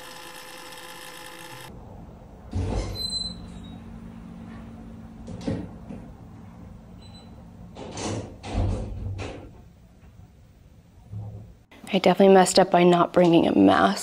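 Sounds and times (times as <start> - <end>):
short high squeak: 2.8 - 3.8.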